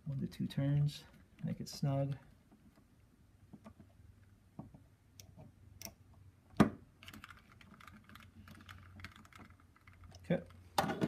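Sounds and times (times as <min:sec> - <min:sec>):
plastic parts clicking and rattling: 0:07.0 - 0:11.0.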